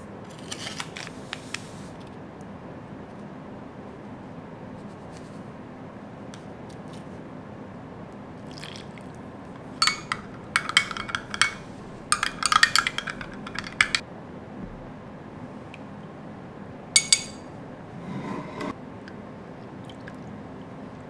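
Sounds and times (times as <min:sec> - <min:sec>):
spoon clinking against glass: 0:09.6 - 0:14.0, 0:17.0 - 0:17.6.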